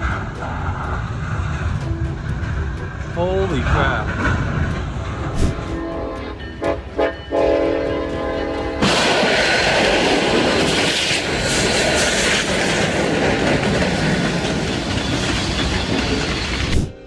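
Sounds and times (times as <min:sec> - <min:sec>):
locomotive horn blasts: 0:05.6 - 0:09.1
roar of train ploughing through wreck: 0:07.3 - 0:17.0
loud crash of train collision: 0:08.8 - 0:17.0.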